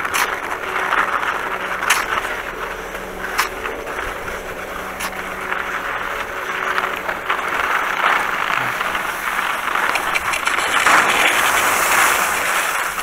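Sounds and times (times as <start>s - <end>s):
sharp clicks: 0.0s - 2.4s, 9.4s - 13.0s
faint low hum: 0.0s - 12.4s
skis hissing on wet snow: 6.9s - 13.0s.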